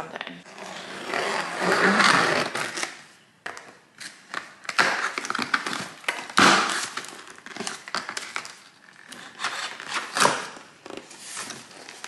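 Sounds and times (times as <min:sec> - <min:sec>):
cardboard and packing rustling: 0:04.8 - 0:12.0.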